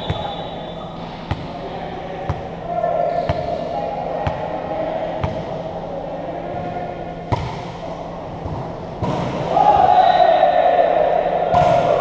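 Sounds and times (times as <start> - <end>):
volleyball bouncing on floor: 7.3 - 7.7.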